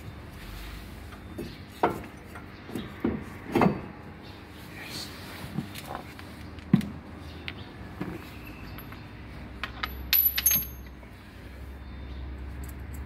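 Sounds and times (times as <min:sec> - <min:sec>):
metal tools clinking and knocking: 0:08.4 - 0:11.0.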